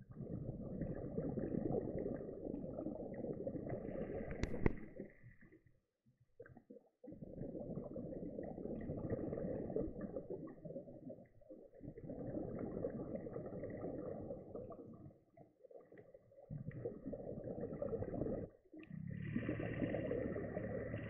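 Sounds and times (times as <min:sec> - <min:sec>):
underwater rumbling and bubbling: 0:00.0 - 0:21.0.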